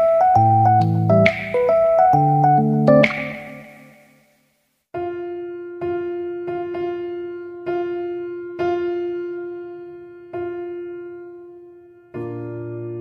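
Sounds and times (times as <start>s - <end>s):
repeated piano-like keyboard note: 0.0s - 4.2s.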